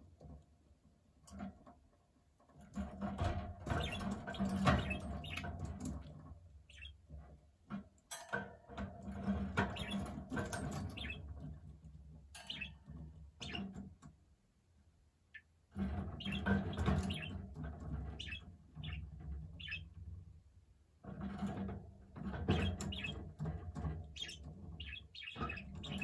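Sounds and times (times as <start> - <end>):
budgerigar warbling and chattering: 3.8 - 5.5, 6.7 - 6.9, 10.9 - 11.2, 16.2 - 17.3, 19.6 - 19.8, 22.5 - 23.2, 24.2 - 26.0.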